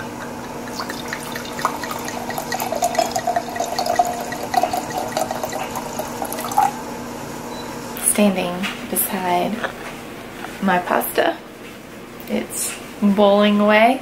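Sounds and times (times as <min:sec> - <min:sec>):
wine pouring into glass: 0:00.0 - 0:06.8.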